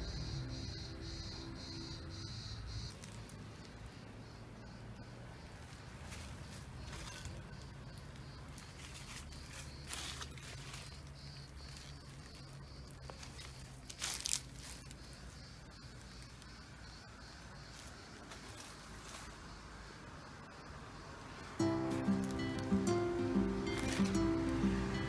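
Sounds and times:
faint high steady tone: 0.0 - 2.8
low hum: 0.0 - 2.9.

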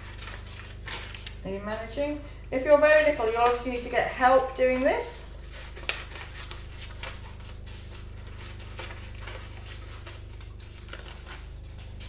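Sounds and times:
steady low hum: 0.0 - 12.0
scissors snipping paper: 5.6 - 12.0.

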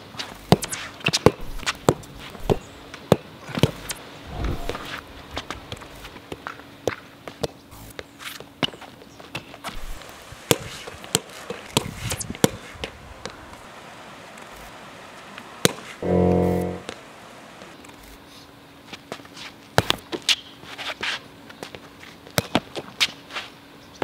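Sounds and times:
loud pitched buzz: 16.0 - 17.0.

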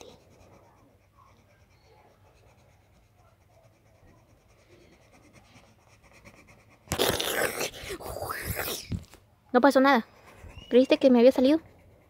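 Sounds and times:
pencil scratching on paper: 0.0 - 9.0, 9.6 - 12.0.

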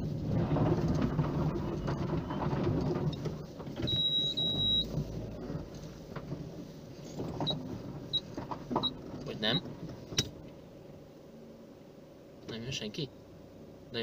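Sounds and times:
car engine and tyres rumbling: 0.0 - 14.0.

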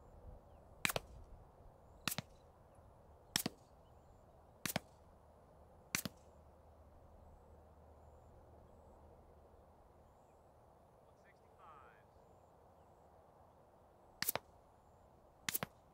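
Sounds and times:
suppressed pistol shots: 0.8 - 1.2, 2.0 - 2.4, 3.3 - 3.6, 4.6 - 5.0, 5.9 - 6.3, 14.2 - 14.5, 15.5 - 15.8.

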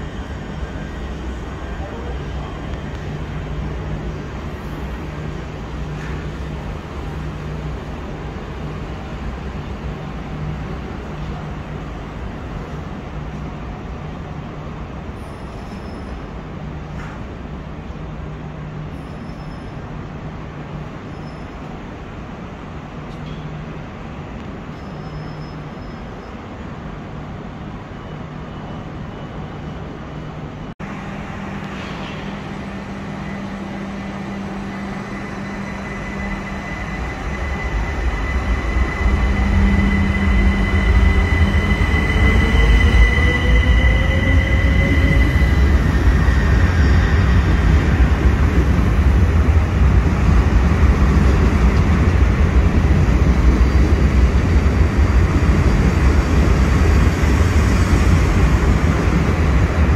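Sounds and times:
standing train low hum: 0.0 - 59.9
train wheel rumble: 30.8 - 59.9.

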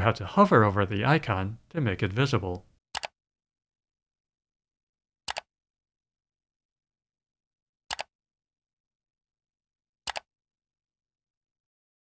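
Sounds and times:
computer mouse clicks: 2.5 - 3.2, 5.3 - 5.5, 7.9 - 8.1, 10.1 - 10.3.

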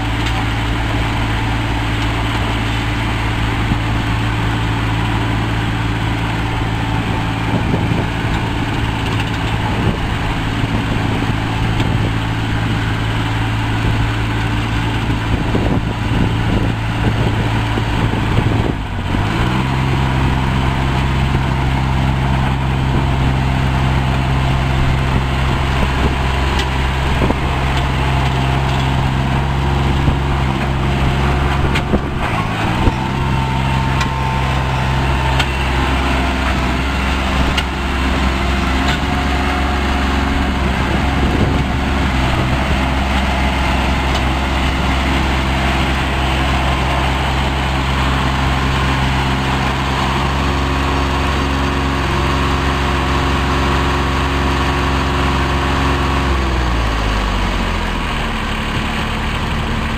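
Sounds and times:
dump carrier engine running: 0.0 - 59.9.

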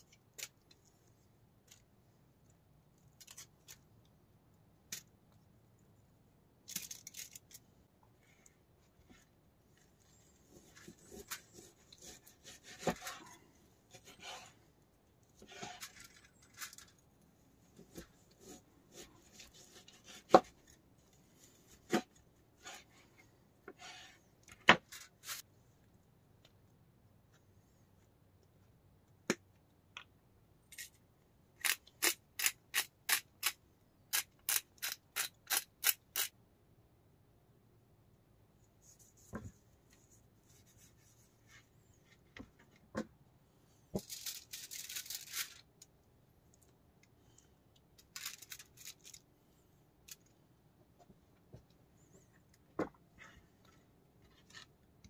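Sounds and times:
rubbing and scraping: 9.0 - 17.0.

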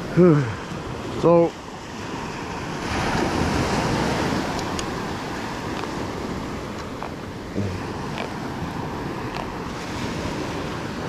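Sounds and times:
ocean waves breaking: 0.0 - 11.0.

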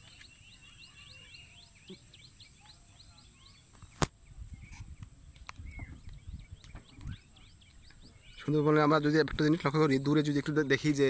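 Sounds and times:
faint bird chirps: 0.0 - 11.0.

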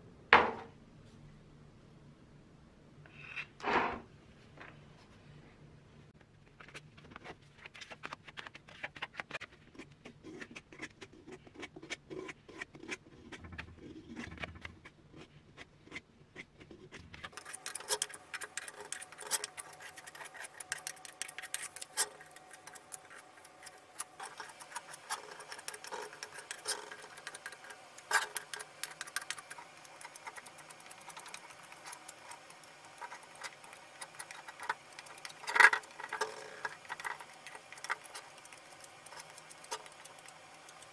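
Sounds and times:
loud knock: 0.3 - 0.7
plastic spreader scraping filler: 16.8 - 40.0.

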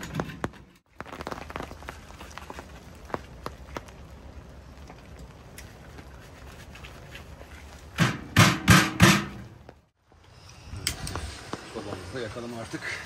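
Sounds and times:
loud knocks on sheet metal: 8.0 - 9.4.

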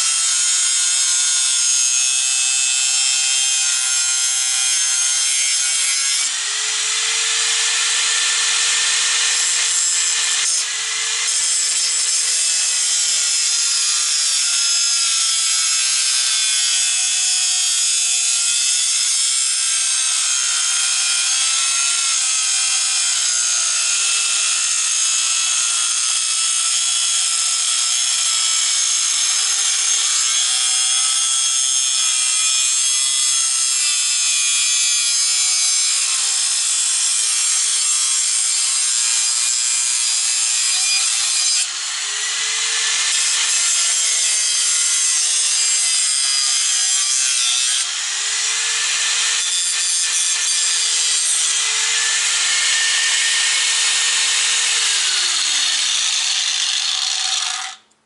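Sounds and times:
angle grinder cutting metal: 0.0 - 58.0.

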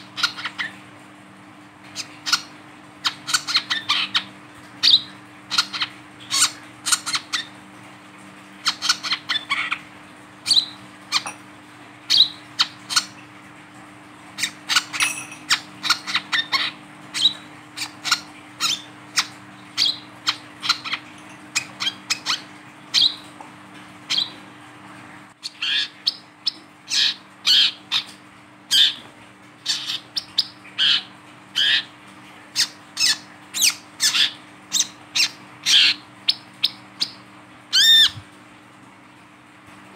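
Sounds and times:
bird chirping: 10.5 - 11.4, 12.1 - 13.1, 14.4 - 23.3, 24.1 - 24.4.

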